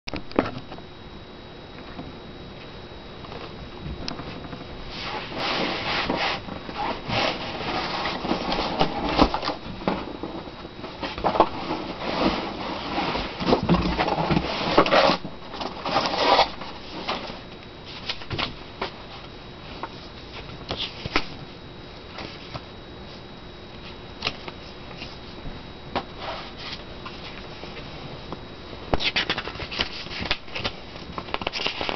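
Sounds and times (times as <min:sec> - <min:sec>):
cardboard rustling and scraping: 0:03.3 - 0:21.4, 0:22.1 - 0:23.2, 0:26.0 - 0:28.1, 0:29.0 - 0:31.9.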